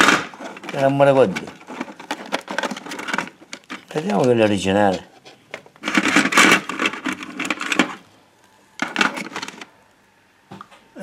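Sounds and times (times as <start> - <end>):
hands rummaging small parts: 0.0 - 8.1, 8.8 - 9.7.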